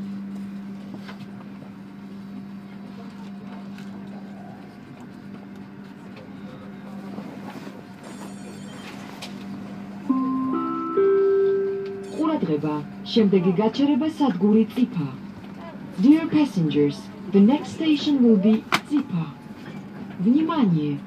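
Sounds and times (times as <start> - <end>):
train rumbling: 3.0 - 21.0
low hum: 8.0 - 15.4.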